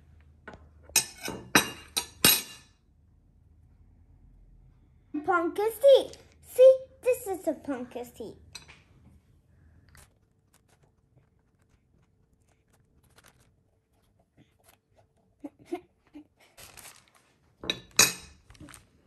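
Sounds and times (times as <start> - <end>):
spoon scraping pumpkin: 9.9 - 15.3.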